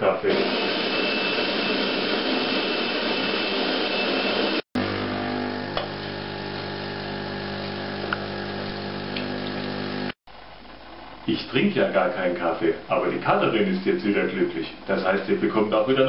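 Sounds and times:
coffee machine grinding beans: 0:00.3 - 0:10.2
pump humming: 0:03.8 - 0:10.2.

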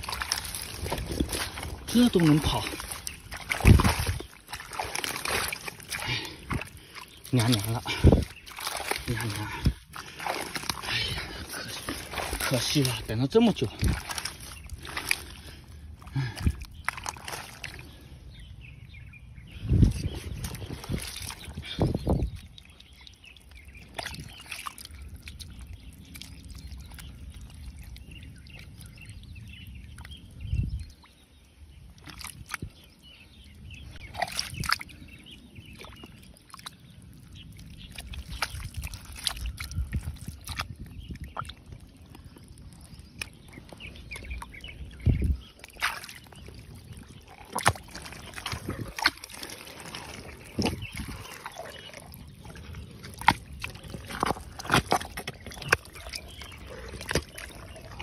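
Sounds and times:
water splashes: 0:00.0 - 0:18.4, 0:19.6 - 0:58.0
hand squelching through mud: 0:00.0 - 0:18.5, 0:19.5 - 0:58.0.

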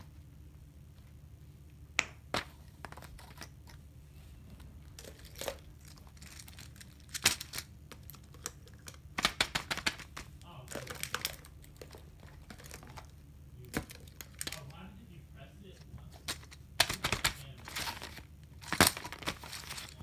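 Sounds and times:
paper rustling: 0:05.0 - 0:08.4, 0:15.8 - 0:20.0
plastic toys clicking and tapping: 0:05.0 - 0:13.1, 0:13.7 - 0:14.7, 0:16.2 - 0:20.0.

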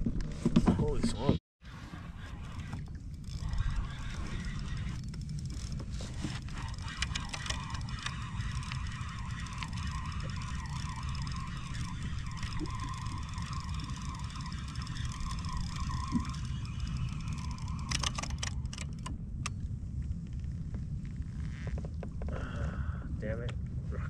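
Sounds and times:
fishing reel whining: 0:01.6 - 0:19.1
fishing reel clicks: 0:02.9 - 0:19.1.

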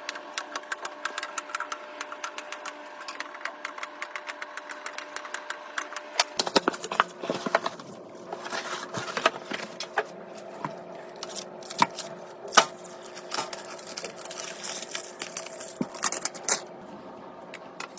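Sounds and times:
plastic rustling: 0:06.3 - 0:16.6.

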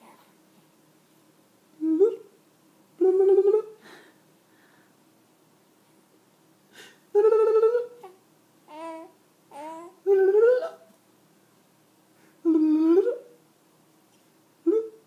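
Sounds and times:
baby cooing: 0:07.8 - 0:10.8.

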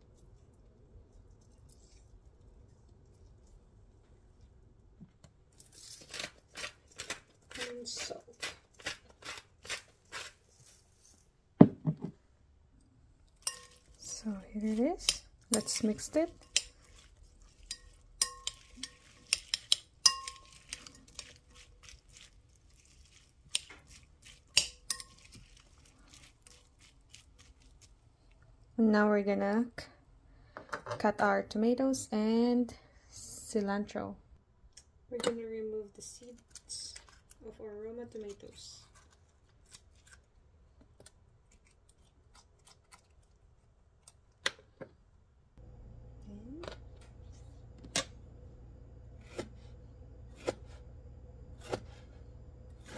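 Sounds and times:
metal spoon scraping tomatoes: 0:05.6 - 0:10.7, 0:13.4 - 0:27.9
metal utensil clinking glass bowl: 0:13.4 - 0:14.0, 0:15.0 - 0:21.4, 0:24.5 - 0:25.6.

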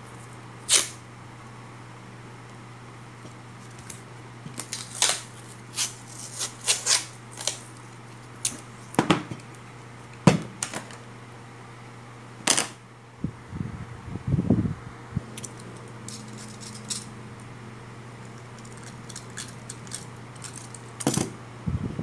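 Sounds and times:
masking tape tearing: 0:00.6 - 0:01.0, 0:03.8 - 0:07.8.

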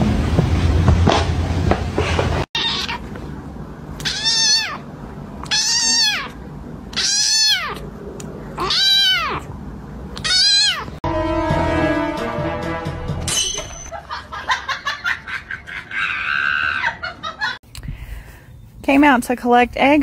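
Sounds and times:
kitten meowing: 0:02.6 - 0:03.1, 0:04.0 - 0:04.8, 0:05.4 - 0:07.8, 0:08.6 - 0:09.5, 0:10.2 - 0:11.0.

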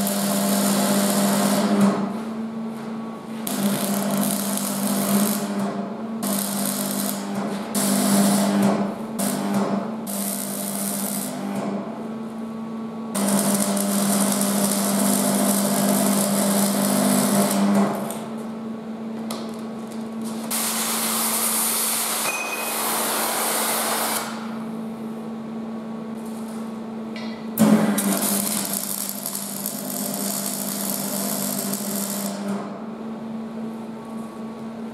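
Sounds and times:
welding arc crackling and buzzing: 0:00.0 - 0:02.2, 0:03.3 - 0:11.7, 0:13.1 - 0:18.5, 0:19.2 - 0:24.6, 0:27.6 - 0:32.8
welding machine humming: 0:00.0 - 0:24.8, 0:26.1 - 0:33.3.

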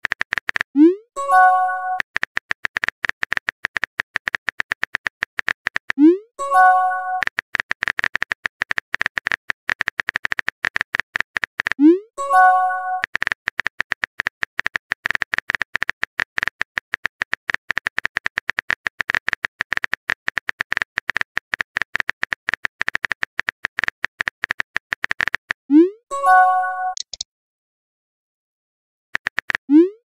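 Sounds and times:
keyboard key clicks: 0:26.9 - 0:27.2.

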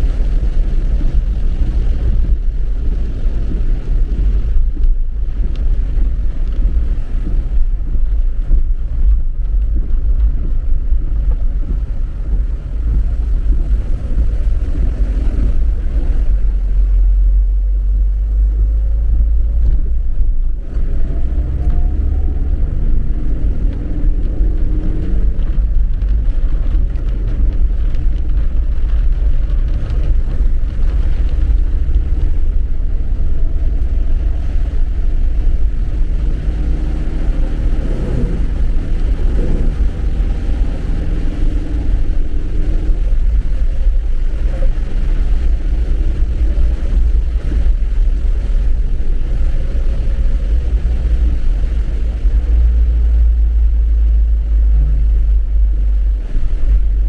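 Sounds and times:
car engine and road rumble: 0:00.0 - 0:57.0
engine tones rising and falling: 0:20.7 - 0:25.6.

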